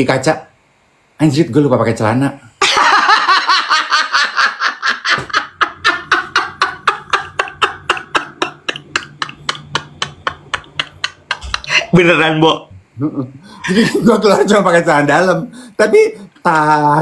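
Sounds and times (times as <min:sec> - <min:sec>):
man laughing hard: 0:02.6 - 0:12.0.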